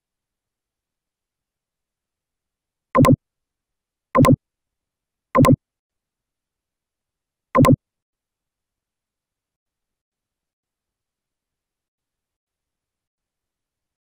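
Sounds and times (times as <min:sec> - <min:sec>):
computer mouse clicks: 0:03.0 - 0:03.2, 0:04.2 - 0:04.4, 0:05.4 - 0:05.6, 0:07.6 - 0:07.8.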